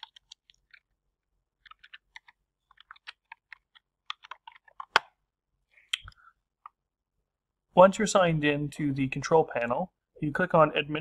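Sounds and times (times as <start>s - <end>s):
computer keyboard typing: 0.0s - 0.9s, 1.6s - 5.0s.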